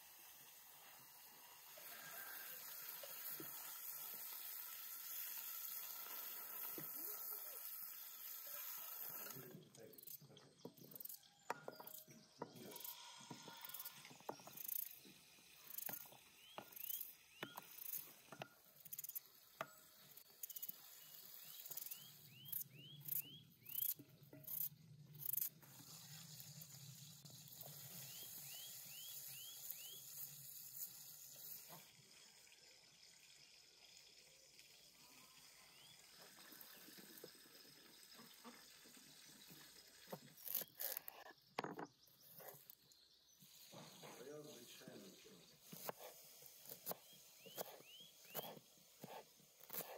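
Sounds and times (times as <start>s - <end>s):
small birds chirping: 6.8s - 25.6s, 26.8s - 30.6s, 35.5s - 49.9s
knife slicing potato: 45.7s - 49.9s.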